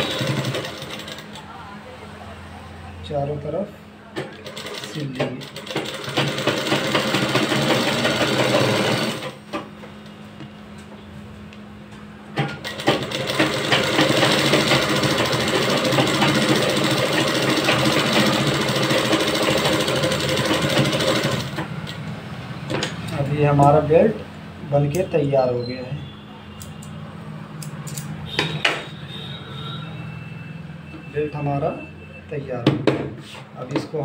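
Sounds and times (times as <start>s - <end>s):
sewing machine stitching: 0.0s - 1.3s, 4.3s - 9.4s, 12.4s - 21.7s.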